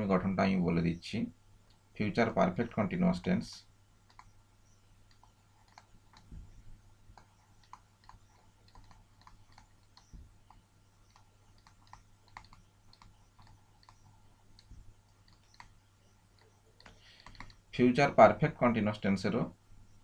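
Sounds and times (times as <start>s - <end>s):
low steady hum: 0.0s - 20.0s
light clicks and taps: 5.0s - 17.6s.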